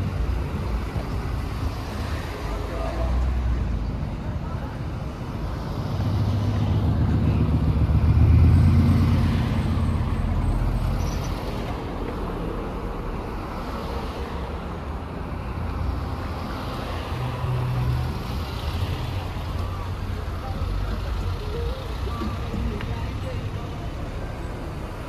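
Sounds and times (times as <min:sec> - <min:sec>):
road noise hum: 0:00.0 - 0:25.0
vehicle engine passing by: 0:05.8 - 0:10.9.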